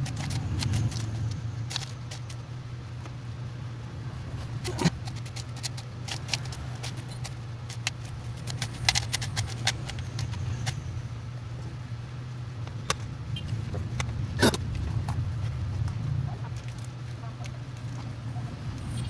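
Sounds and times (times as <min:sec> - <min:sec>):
steady low hum: 0:00.0 - 0:19.0.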